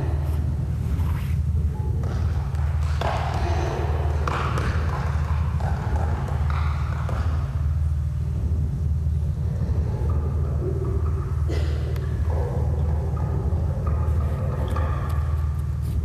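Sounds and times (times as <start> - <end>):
deep rumbling drone: 0.0 - 16.0.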